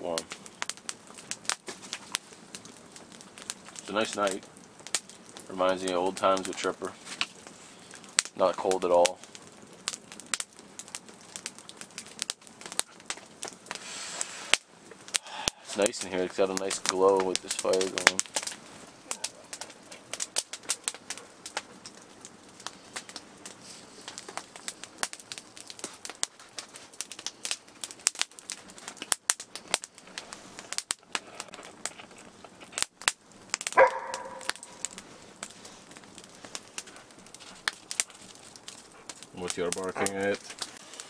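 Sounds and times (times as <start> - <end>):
wood fire crackling: 0.0 - 41.0
dog barking: 33.8 - 34.8.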